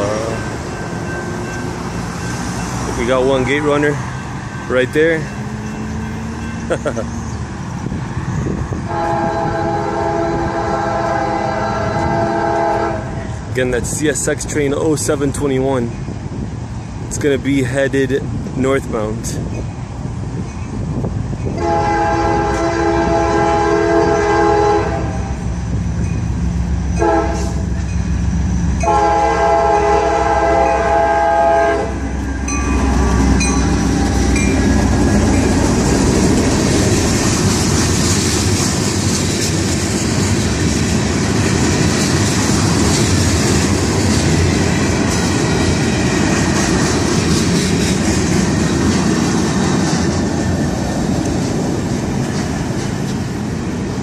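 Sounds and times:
train wheels on rails: 0:00.0 - 0:54.0
locomotive horn blasts: 0:08.9 - 0:13.2, 0:21.6 - 0:25.4, 0:27.0 - 0:27.8, 0:28.8 - 0:34.6
deep diesel engine rumble: 0:21.6 - 0:54.0.

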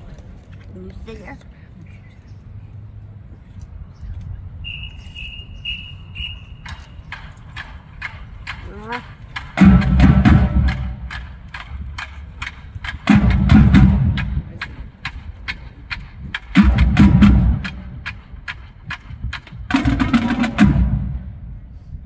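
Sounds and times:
whistle blasts: 0:04.6 - 0:07.1
drumline playing loudly: 0:06.6 - 0:21.4.

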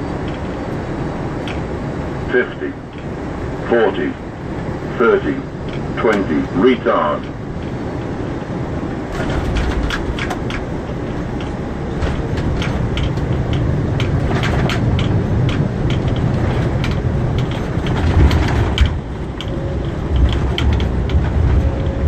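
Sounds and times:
heavy runway rumble: 0:00.0 - 0:22.0
cockpit fittings rattling and clicking: 0:07.2 - 0:21.8.

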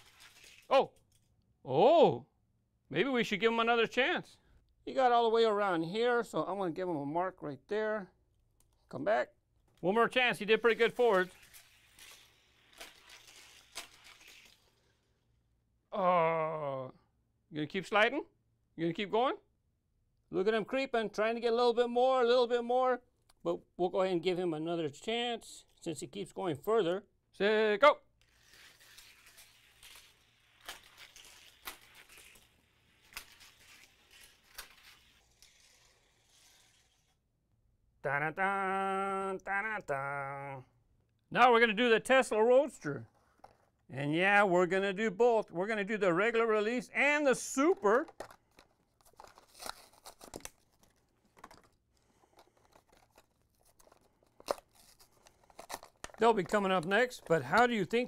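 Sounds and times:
cardboard tearing: 0:00.0 - 0:00.7, 0:10.5 - 0:14.8, 0:28.3 - 0:37.1, 0:48.1 - 0:58.0
plastic blister pack crinkling: 0:00.0 - 0:00.7, 0:10.4 - 0:14.9, 0:28.2 - 0:35.8, 0:47.4 - 0:58.0
toy car rattling along plastic track: 0:00.0 - 0:00.7, 0:10.6 - 0:14.8, 0:28.2 - 0:37.1.

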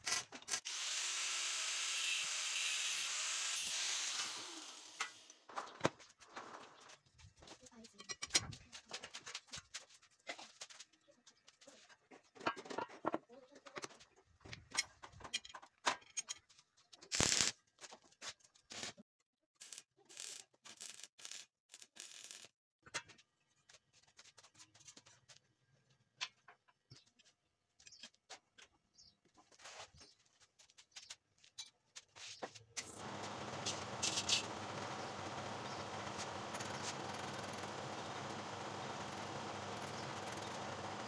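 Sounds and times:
arc welding bursts: 0:00.6 - 0:05.3, 0:33.0 - 0:41.0.

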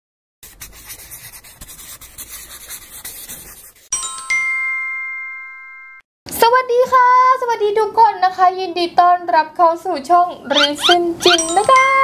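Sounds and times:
bright bell-like chime: 0:04.0 - 0:06.0, 0:11.4 - 0:12.0.

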